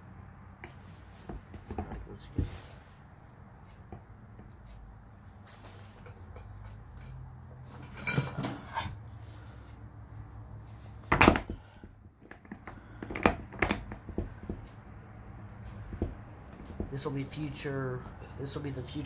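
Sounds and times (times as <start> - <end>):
metal gears clinking and clanking: 6.1 - 9.0.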